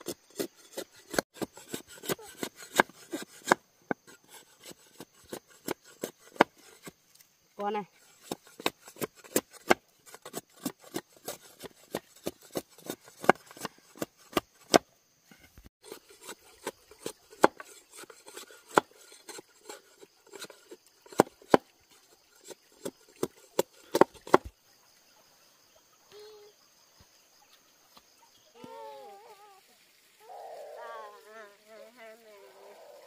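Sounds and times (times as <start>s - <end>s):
blade chopping wood: 1.1s - 4.1s, 8.2s - 14.8s, 16.6s - 17.7s, 18.3s - 19.4s, 21.1s - 21.7s, 23.2s - 24.5s.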